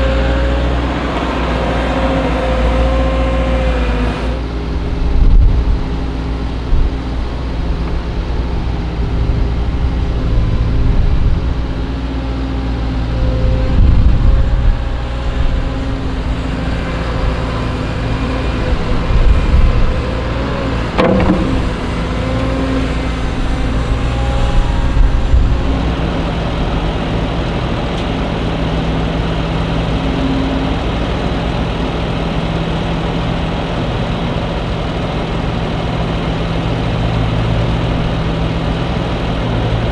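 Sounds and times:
hydraulic whine: 0.0 - 27.2
diesel engine: 0.0 - 39.9
bucket clanking on metal: 20.8 - 22.4.

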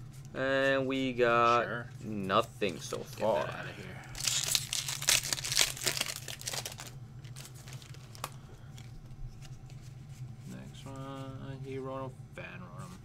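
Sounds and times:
foil wrapper crinkling and tearing: 4.1 - 8.9.

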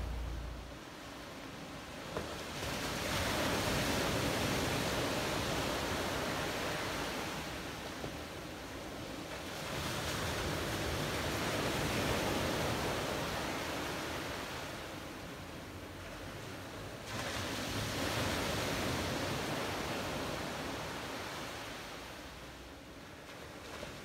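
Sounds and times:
ocean waves washing: 0.0 - 15.7.

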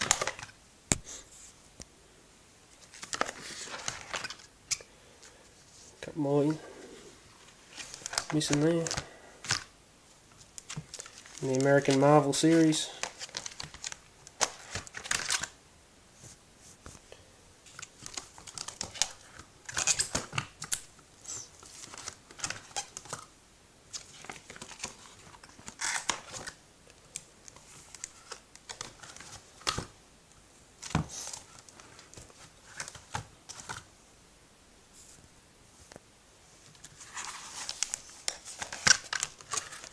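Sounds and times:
plastic pages rustling and crinkling: 0.0 - 0.6, 2.8 - 6.6, 7.3 - 9.7, 10.3 - 15.6, 16.7 - 23.3, 23.9 - 29.9, 30.8 - 33.9, 36.6 - 39.9.

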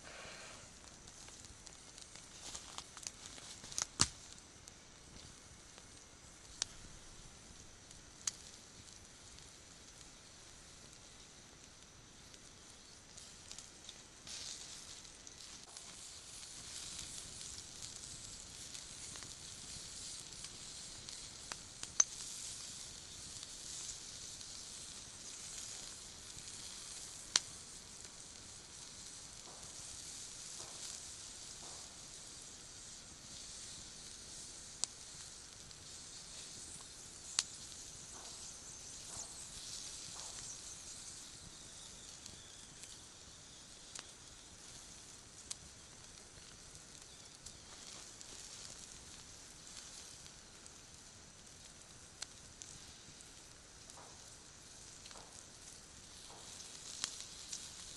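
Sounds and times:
sharp pops: 0.0 - 4.4, 29.4 - 32.1, 35.9 - 41.2, 55.0 - 57.6
sausages sizzling on grill: 0.0 - 57.9.

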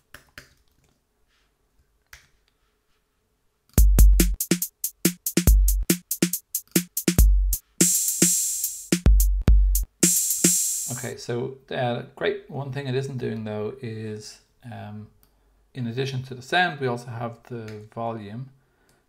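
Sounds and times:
deep kick drum thumps: 3.8 - 4.4, 5.4 - 6.0, 7.1 - 7.6, 9.0 - 9.9
drum machine beat: 3.8 - 11.0
open hi-hat wash: 3.8 - 11.1.

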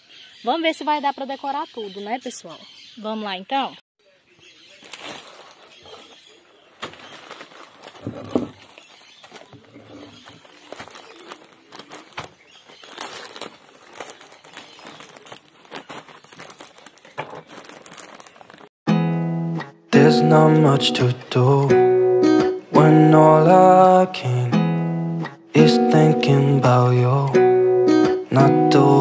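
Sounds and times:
plastic bag crinkling: 4.7 - 18.7.

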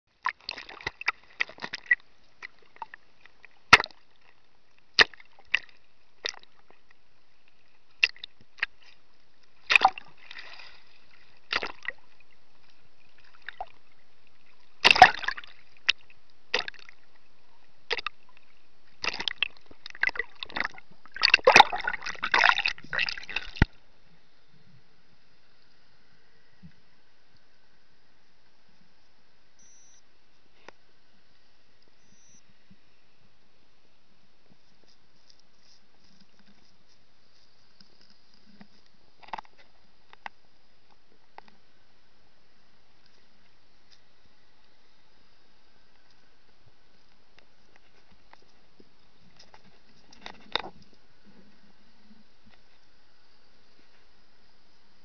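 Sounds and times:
faint hiss: 0.1 - 55.0
water sloshing and splashing: 0.2 - 4.4, 5.0 - 6.8, 9.6 - 17.2, 17.9 - 23.8.

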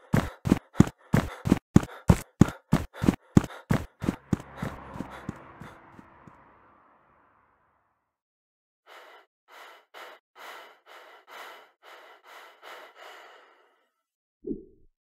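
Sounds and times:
rapid heavy breathing: 0.0 - 6.2, 8.9 - 14.0.

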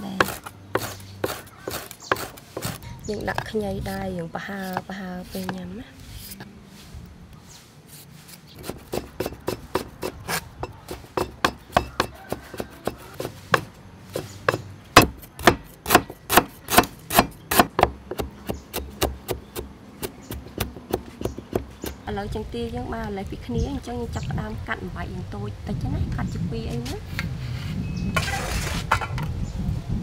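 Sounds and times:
cleaver chopping on wooden board: 0.1 - 3.4, 8.6 - 22.0
faint scraping of peeling: 4.4 - 9.1.

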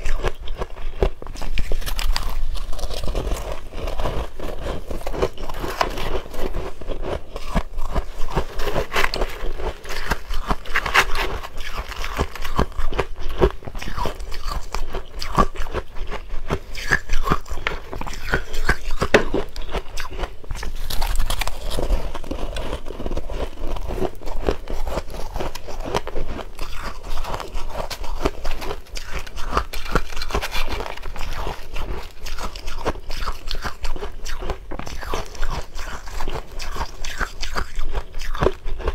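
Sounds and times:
crunching ice: 0.0 - 38.9.

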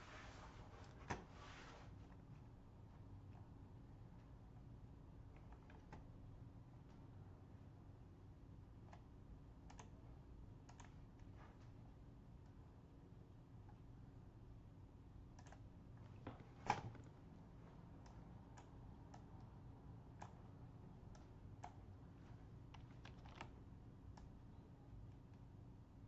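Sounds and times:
faint steady hum: 0.0 - 26.0
mouse and keyboard clicks: 22.7 - 24.3.

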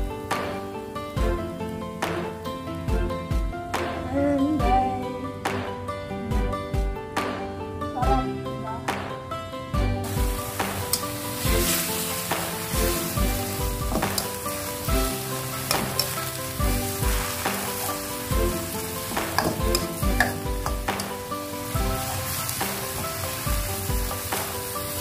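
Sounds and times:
sprouts sizzling in a wok: 0.0 - 3.4, 10.0 - 25.0
soft background music: 0.0 - 25.0
spatula scraping a pan: 10.1 - 23.5.

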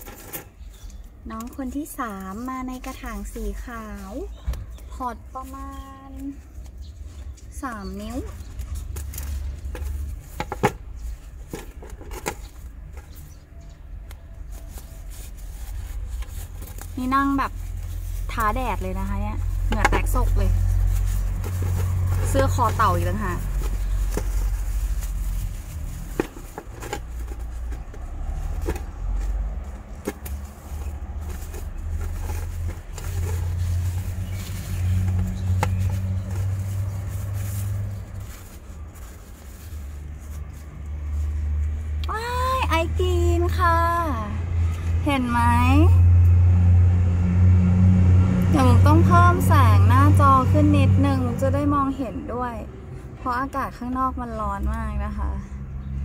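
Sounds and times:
plant pots and packaging clicking: 0.0 - 43.6
sharp knocks and rustles: 8.3 - 13.4, 19.4 - 40.7.

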